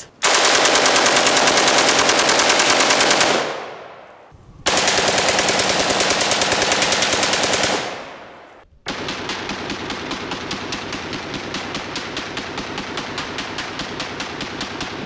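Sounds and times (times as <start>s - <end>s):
automatic rifle bursts: 0.2s - 3.7s.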